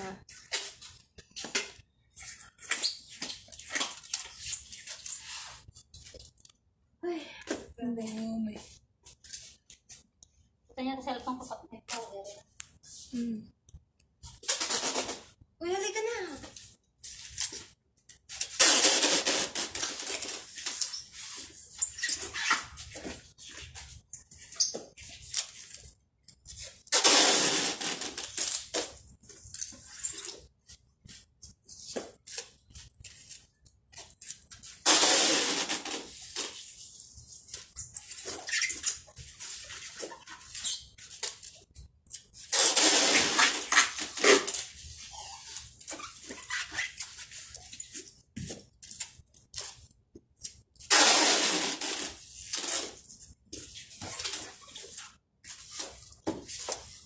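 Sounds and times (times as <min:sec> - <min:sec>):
packing tape rasping off roll: 0:14.2 - 0:15.4, 0:16.5 - 0:48.2, 0:48.8 - 0:57.0.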